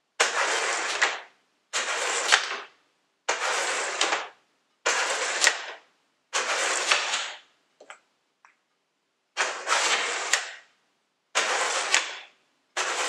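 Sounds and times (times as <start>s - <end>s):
wooden discs sliding on board: 3.3s - 4.2s, 6.4s - 7.4s, 9.4s - 10.6s, 11.4s - 13.0s.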